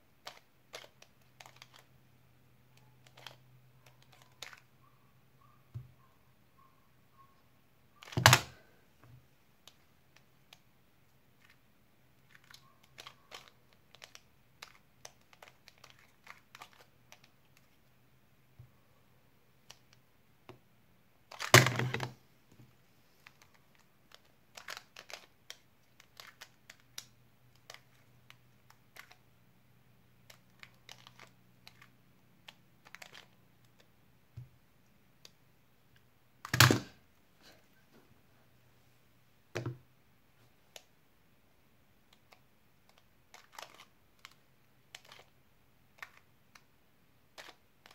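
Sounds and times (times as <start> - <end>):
puzzle cube clacking: 0.2 - 1.9, 3.0 - 4.7, 8.0 - 8.7, 12.2 - 17.8, 21.3 - 22.2, 23.2 - 29.2, 30.2 - 33.9, 42.1 - 45.3, 46.0 - 46.7, 47.3 - 47.9.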